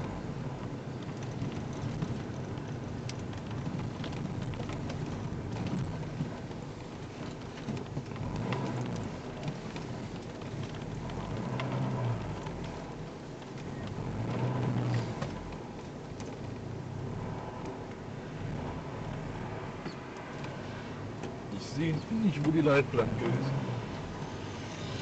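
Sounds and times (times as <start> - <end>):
small clicks and rattles: 0.0 - 16.8
engine and road rumble: 0.0 - 25.0.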